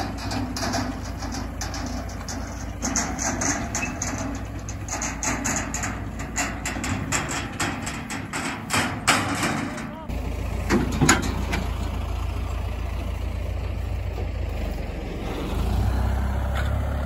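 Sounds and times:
sharp knocks and clatter: 0.0s - 12.0s
tractor diesel engine running: 0.0s - 17.0s.

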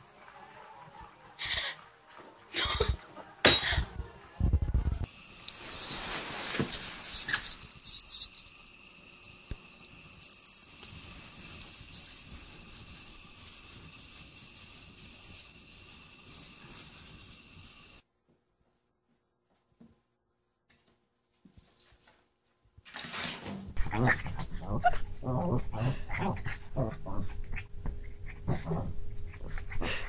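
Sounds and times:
cat scratching at snow: 5.4s - 8.4s.

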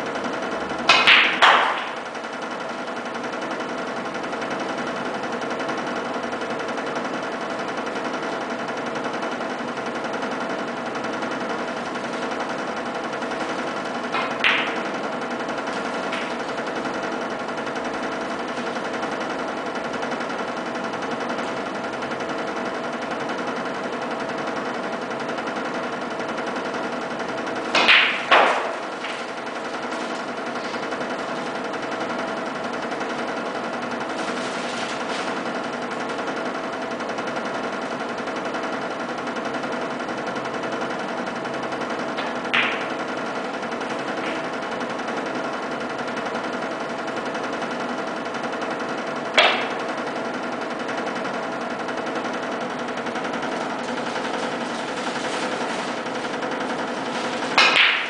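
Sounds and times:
steady machine hum: 0.0s - 58.0s
snooker balls clacking: 0.7s - 3.6s, 11.7s - 19.8s, 27.4s - 31.9s, 42.1s - 45.1s, 49.3s - 50.1s, 56.8s - 58.0s
cue tip clicking on ball: 0.9s - 2.0s, 14.0s - 14.9s, 27.7s - 29.4s, 42.2s - 43.0s, 49.4s - 49.8s, 57.5s - 58.0s.

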